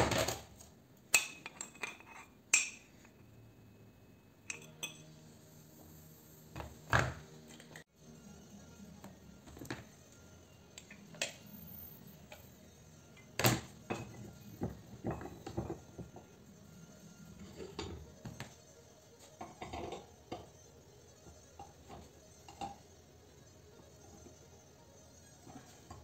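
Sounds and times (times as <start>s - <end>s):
metal clinks and knocks: 1.2s - 3.2s.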